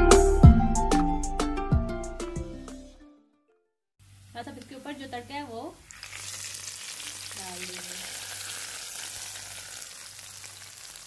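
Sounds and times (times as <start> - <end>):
hot oil sizzling: 4.0 - 11.0.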